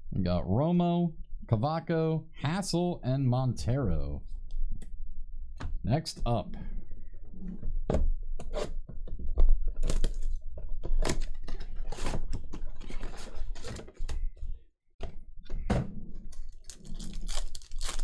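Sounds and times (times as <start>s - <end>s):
wrapper crinkling and tearing: 16.6s - 18.0s.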